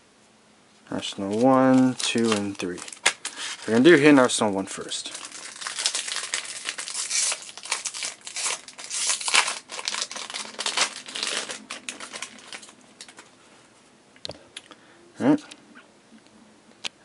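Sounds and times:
foil wrapper tearing and crinkling: 0:01.2 - 0:04.2, 0:04.8 - 0:13.2.

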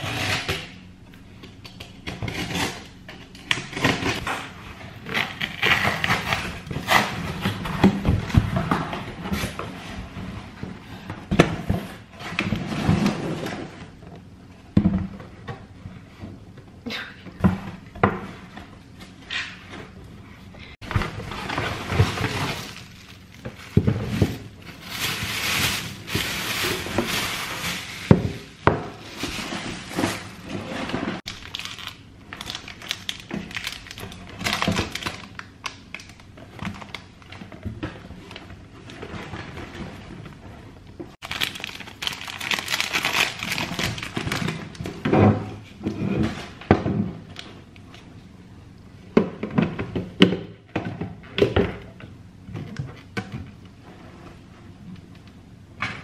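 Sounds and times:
plastic wrapping crinkling: 0:20.9 - 0:37.3, 0:41.2 - 0:44.9.

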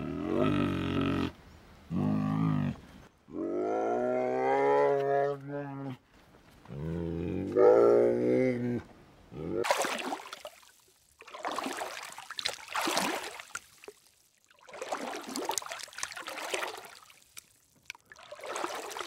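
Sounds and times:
pool water splashing: 0:09.6 - 0:19.0.

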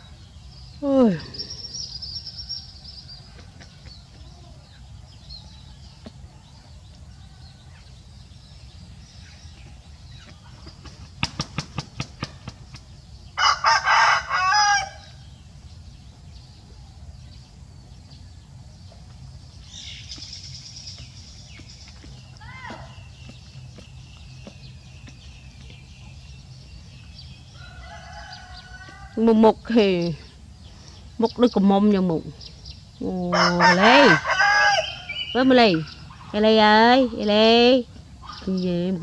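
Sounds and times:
rooster wings flapping: 0:10.6 - 0:12.9
rooster crowing: 0:13.4 - 0:15.2, 0:27.4 - 0:29.2, 0:33.3 - 0:35.4.

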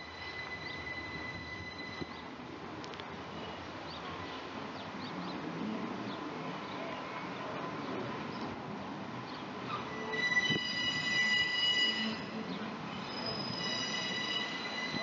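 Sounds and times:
train wheels squealing on rails: 0:00.0 - 0:02.4, 0:09.6 - 0:15.0
low rumble of rolling train: 0:00.0 - 0:15.0.

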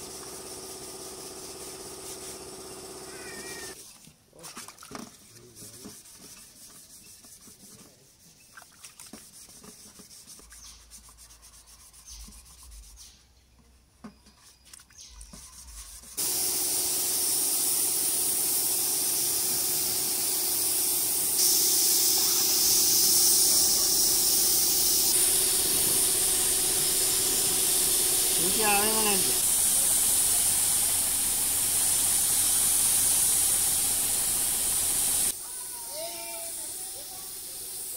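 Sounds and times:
hand sanding rubbing: 0:00.0 - 0:02.9, 0:05.4 - 0:13.2, 0:15.3 - 0:16.5, 0:19.0 - 0:35.4
paint spray gun hissing: 0:00.0 - 0:03.8, 0:16.2 - 0:37.9.

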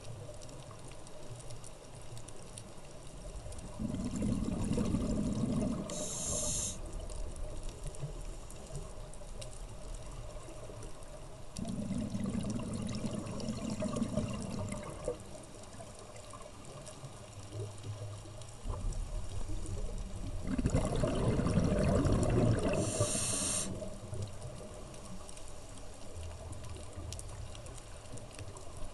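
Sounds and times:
low underwater background: 0:00.0 - 0:28.9
bubbly exhalations: 0:03.6 - 0:06.6, 0:11.6 - 0:15.2, 0:20.3 - 0:23.8
regulator hissing on inhale: 0:05.6 - 0:06.9, 0:22.7 - 0:23.9.

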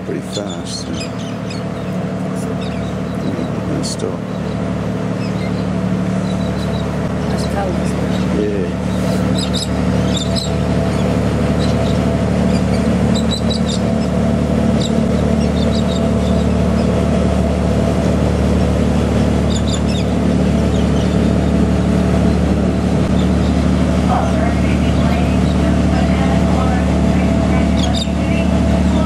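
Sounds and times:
boat engine droning: 0:00.0 - 0:29.0
high bird chirps: 0:00.3 - 0:17.0, 0:19.4 - 0:21.6, 0:27.7 - 0:28.4.

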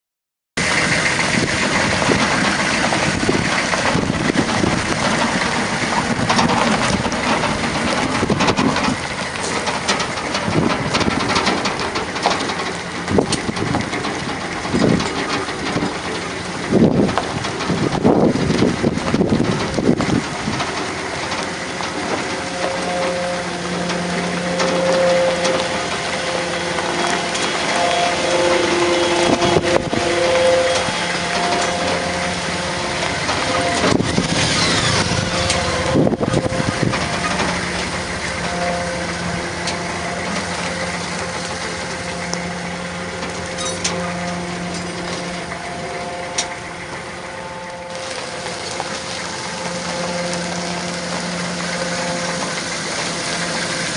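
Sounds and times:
tyres crunching over gravel: 0:00.6 - 0:53.9
vehicle engine running: 0:00.6 - 0:53.9
motorcycle passing: 0:22.3 - 0:53.9.

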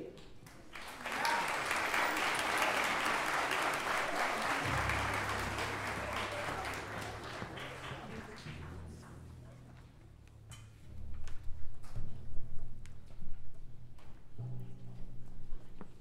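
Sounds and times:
audience applauding: 0:00.4 - 0:09.2.

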